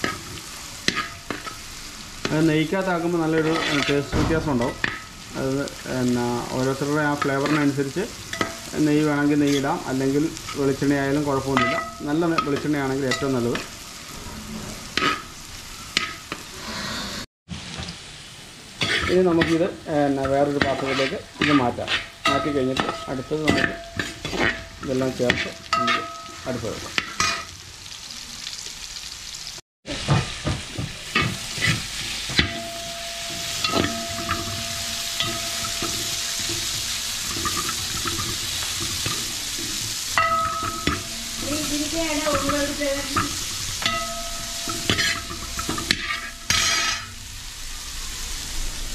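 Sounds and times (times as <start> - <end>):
frying sizzle: 0.0 - 48.9
utensils scraping metal pan: 3.2 - 5.0, 10.4 - 17.2, 18.8 - 26.3, 31.1 - 47.2.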